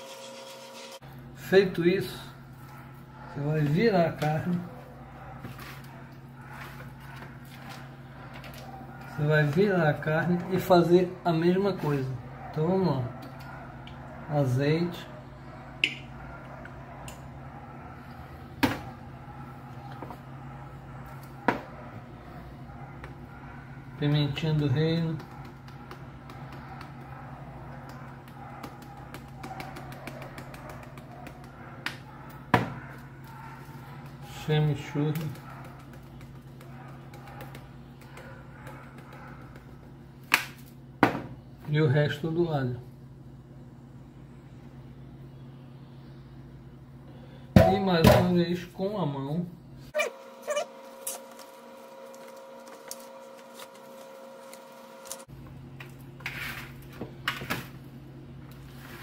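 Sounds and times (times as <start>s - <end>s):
machine hum: 0.0s - 1.5s, 49.6s - 56.0s.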